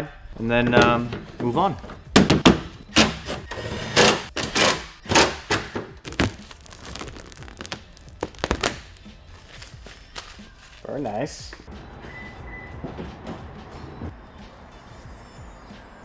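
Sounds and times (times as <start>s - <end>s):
plastic knocks and thunks: 0.7s - 2.8s
protective film crinkling: 6.0s - 10.9s.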